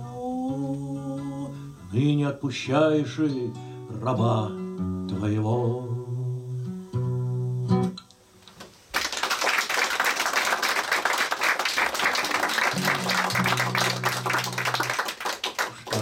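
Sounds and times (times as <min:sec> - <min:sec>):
acoustic guitar chords ringing: 0:00.1 - 0:08.4, 0:12.6 - 0:14.9
audience applause: 0:08.9 - 0:16.0.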